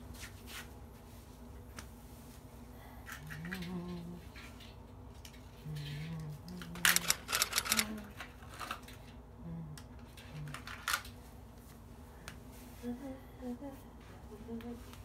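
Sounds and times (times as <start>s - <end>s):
clicks and rattling of objects: 3.0s - 9.2s, 9.8s - 11.2s.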